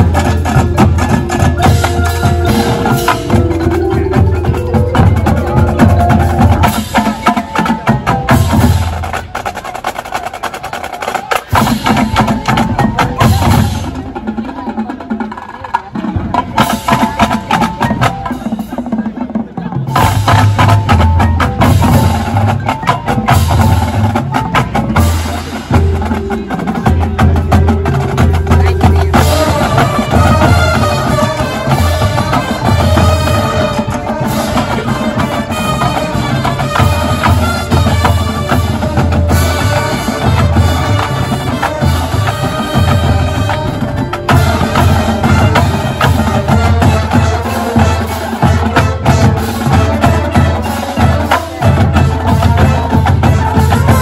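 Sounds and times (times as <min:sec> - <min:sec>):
wind section held chords: 0:00.0 - 0:09.1, 0:25.0 - 0:54.0
pulsing low drum beat: 0:00.0 - 0:09.3
marching band playing: 0:00.0 - 0:54.0.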